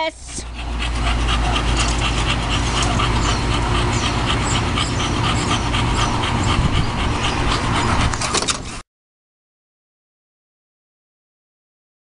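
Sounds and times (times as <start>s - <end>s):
dog panting: 0.0s - 8.8s
steady low rumble: 0.0s - 8.8s.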